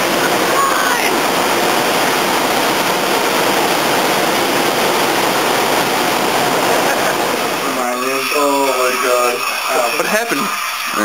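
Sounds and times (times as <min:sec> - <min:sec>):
loud steady rushing noise: 0:00.0 - 0:11.0.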